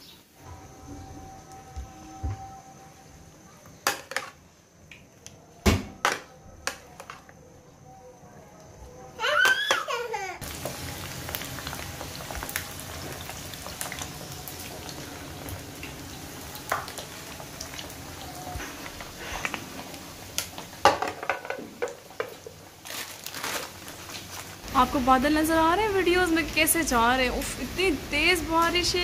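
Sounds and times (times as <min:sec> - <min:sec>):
music: 0:00.4 - 0:04.0, 0:05.1 - 0:09.2
chips sizzling in hot oil: 0:10.4 - 0:29.0.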